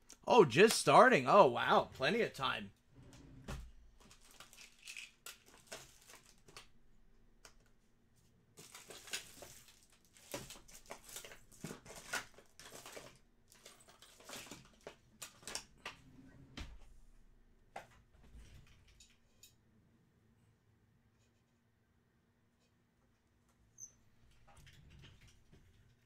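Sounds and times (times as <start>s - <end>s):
crinkling foil wrapper: 4.0s - 6.7s, 8.6s - 15.5s.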